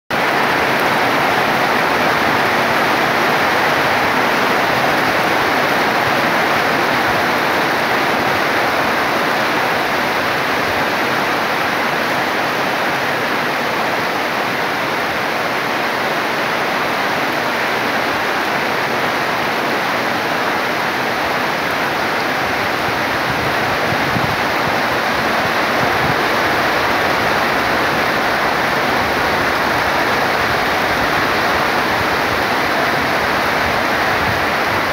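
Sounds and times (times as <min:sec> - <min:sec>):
heavy rain on foliage: 0:00.1 - 0:34.9.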